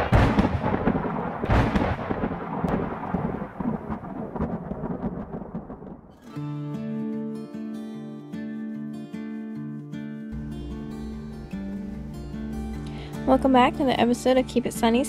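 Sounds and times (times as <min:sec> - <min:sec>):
rolling thunder rumble: 0:00.0 - 0:06.2
thunder crack: 0:00.0 - 0:06.2.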